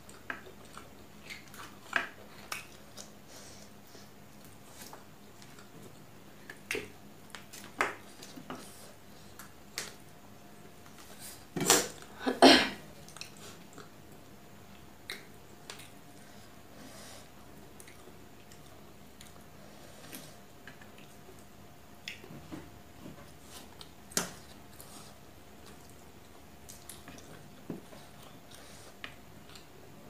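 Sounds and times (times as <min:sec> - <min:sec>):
person chewing with mouth clicks: 0:00.0 - 0:03.2, 0:13.0 - 0:16.3, 0:17.6 - 0:22.3, 0:23.6 - 0:29.8.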